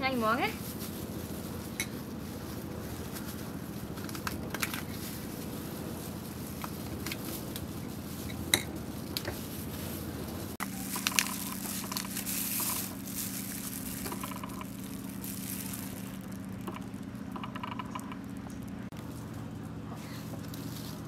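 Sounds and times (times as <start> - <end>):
plastic glove crinkling: 0.0 - 17.4
steady low hum: 0.0 - 21.0.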